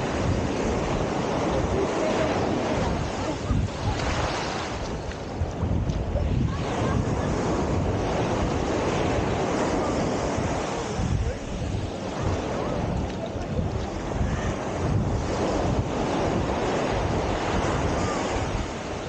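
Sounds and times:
ocean surf: 0.0 - 19.0
wind buffeting microphone: 0.0 - 19.0.

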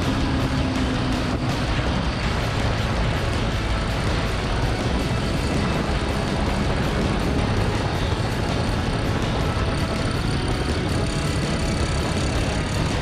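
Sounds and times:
motorcycle engine at speed: 0.0 - 13.0
wind noise: 0.0 - 13.0.

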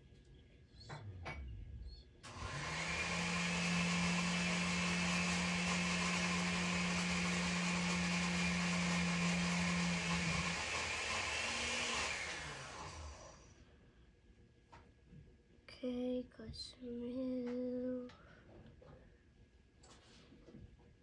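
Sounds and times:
small electric motor humming: 2.3 - 13.5.

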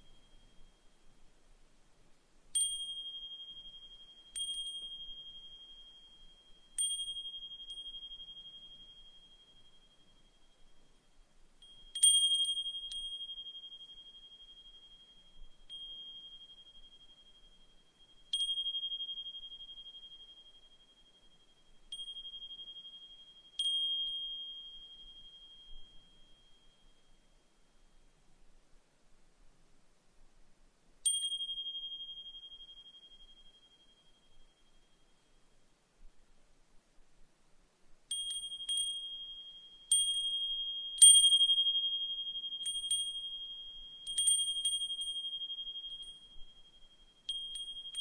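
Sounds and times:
wind chime ringing: 38.1 - 48.0.

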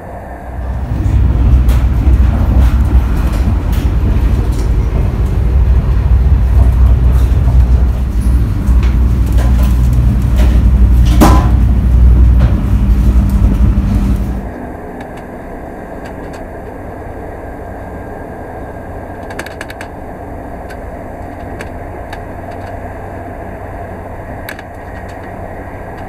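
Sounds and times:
train interior low rumble: 0.0 - 26.0
knocks and rattles: 0.6 - 14.4.

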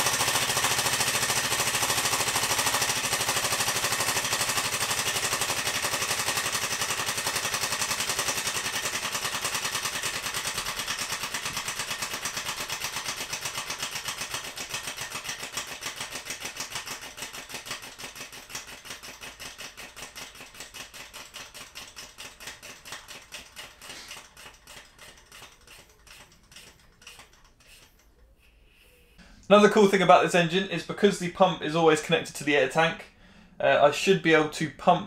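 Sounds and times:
air engine puffing and clattering: 0.0 - 28.2.

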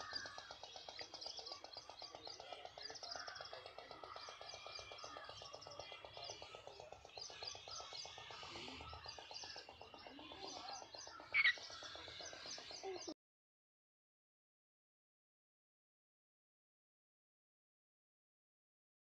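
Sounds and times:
birds chirping and twittering: 0.0 - 13.2
sharp bird call: 11.3 - 11.6.

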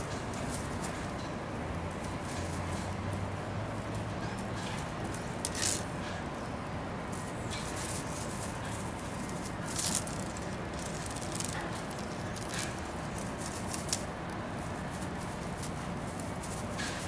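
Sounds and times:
steady background hiss: 0.0 - 17.0
crinkly toy rustling: 4.7 - 6.1, 7.1 - 17.0.

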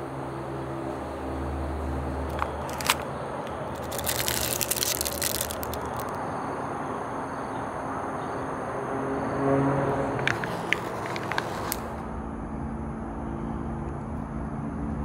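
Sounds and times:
plastic wrapper crinkling: 2.3 - 6.2, 10.3 - 12.0.

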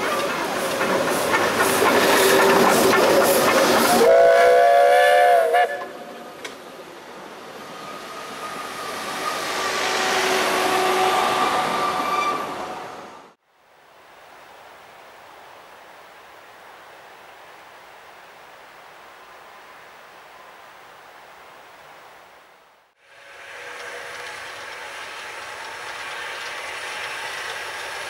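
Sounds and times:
steam locomotive exhaust chuffs: 0.0 - 6.2, 23.0 - 28.0
coaches rumbling over rails: 0.0 - 13.4, 23.0 - 28.0
steam whistle blast: 3.9 - 6.1, 8.4 - 12.8, 23.0 - 27.9
wheel squeal: 7.8 - 12.8.

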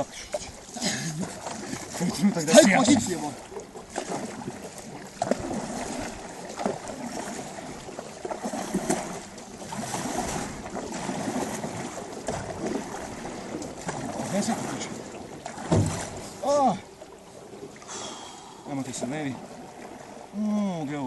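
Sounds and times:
paddles splashing through water: 0.0 - 21.0
sharp knocks: 15.7 - 16.1.

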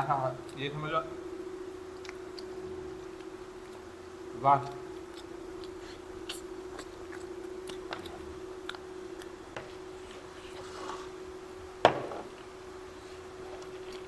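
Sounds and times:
steady hum: 0.0 - 14.0
people chewing: 1.9 - 3.9, 4.5 - 11.2, 13.2 - 14.0
lip smacks: 4.6 - 9.4.

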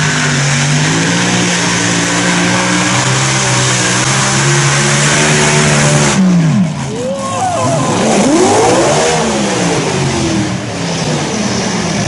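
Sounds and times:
tractor engines droning at high revs: 0.0 - 12.0.

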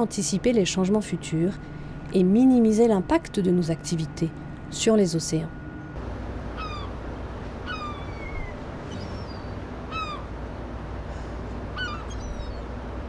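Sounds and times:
gulls calling: 6.4 - 13.0.

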